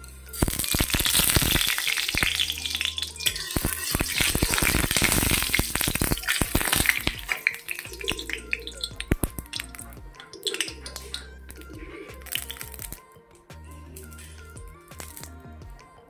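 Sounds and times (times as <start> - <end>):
oil sizzling and popping: 0.0 - 13.1, 14.0 - 15.4
fish frying in hot oil: 0.3 - 11.2.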